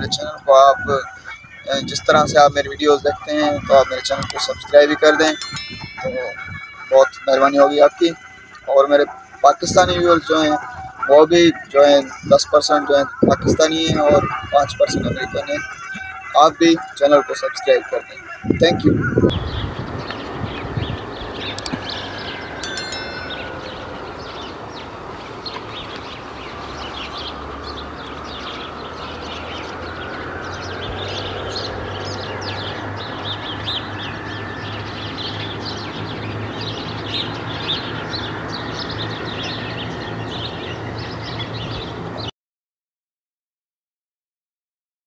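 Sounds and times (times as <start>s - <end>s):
birds chirping and singing: 0.0s - 42.3s
short bright chime: 5.3s - 6.9s, 22.6s - 24.3s.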